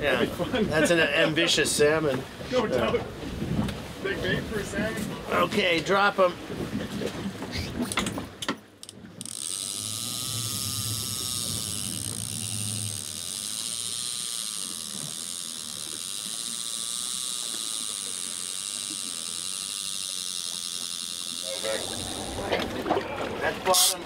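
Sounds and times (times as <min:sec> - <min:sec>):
fishing reel spool whirring: 0:08.8 - 0:24.0
low hum: 0:09.4 - 0:15.8, 0:21.0 - 0:24.0.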